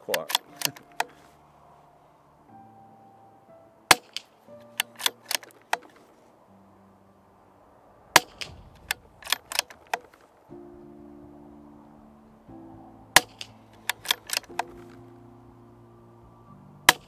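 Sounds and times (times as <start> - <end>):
rifle bolt clicking: 0.1 - 1.2, 3.9 - 6.0, 13.2 - 14.8.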